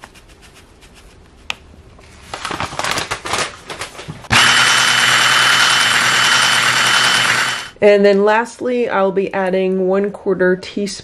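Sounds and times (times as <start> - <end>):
immersion blender whirring: 4.3 - 7.8.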